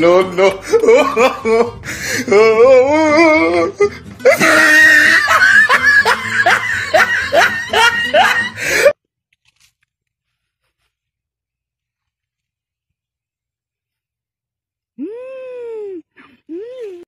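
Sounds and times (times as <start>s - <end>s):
loud laughter: 0.0s - 9.0s.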